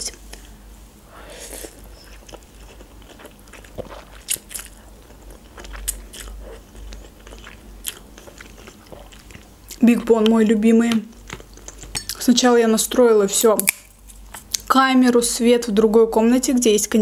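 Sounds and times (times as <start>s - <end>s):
chewing: 1.4s - 12.2s.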